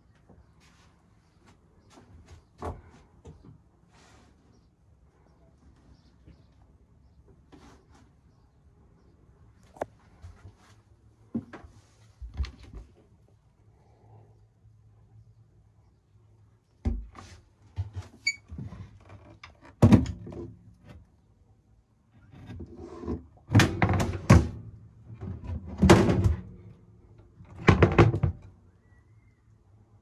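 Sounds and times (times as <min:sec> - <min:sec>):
cool-box lid shutting: 0:23.5 - 0:24.6.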